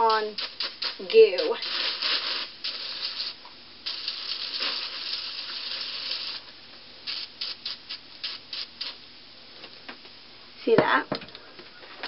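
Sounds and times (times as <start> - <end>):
aerosol can spraying: 0.0 - 6.5, 7.1 - 9.0.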